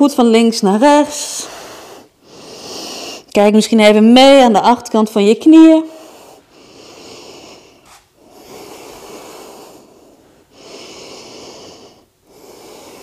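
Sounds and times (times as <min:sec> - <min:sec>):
woman breathing slowly: 0:01.2 - 0:03.3, 0:05.9 - 0:13.0.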